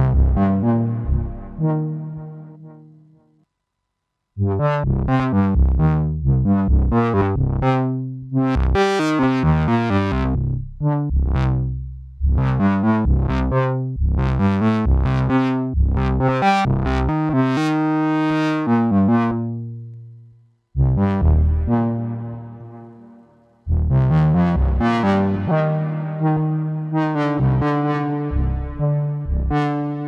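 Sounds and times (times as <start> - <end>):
synthesizer melody: 0.0 - 3.0, 21.2 - 30.0.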